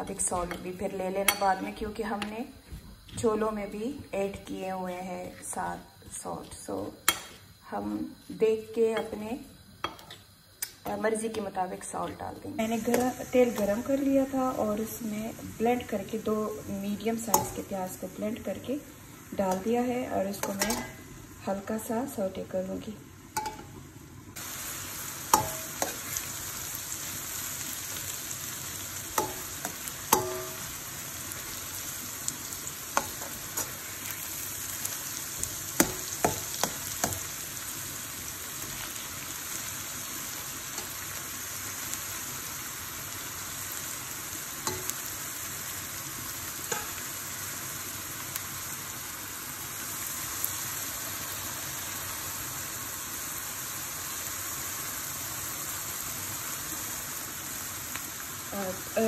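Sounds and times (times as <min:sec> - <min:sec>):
onion sizzling in hot oil: 0:00.0 - 0:59.0
metal spoon scraping a pan: 0:07.1 - 0:07.4, 0:09.8 - 0:10.3, 0:20.4 - 0:21.0, 0:25.3 - 0:26.4, 0:33.0 - 0:34.1, 0:44.6 - 0:45.1, 0:46.7 - 0:47.1.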